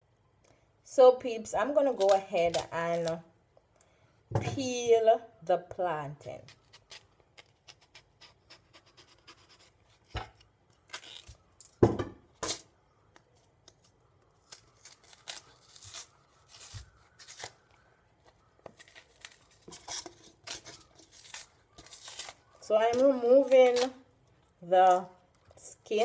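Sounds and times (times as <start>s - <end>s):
peel tearing: 1.9s - 3.2s, 6.4s - 11.8s, 13.2s - 25.5s
knife scraping plantain skin: 6.3s - 11.4s, 14.4s - 24.0s.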